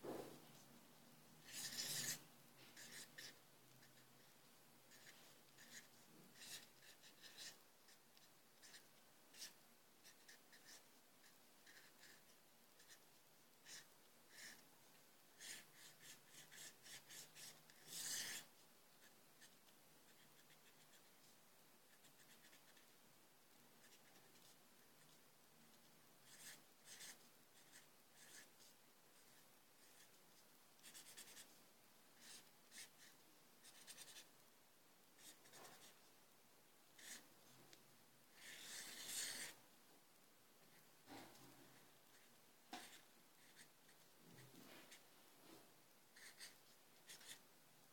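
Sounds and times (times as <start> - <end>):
pen scratching on paper: 1.4 - 4.3, 4.9 - 14.6, 15.4 - 22.9, 23.8 - 25.2, 26.2 - 30.2, 30.8 - 31.6, 32.2 - 34.3, 35.2 - 36.0, 37.0 - 37.2, 38.3 - 39.6, 41.1 - 47.4.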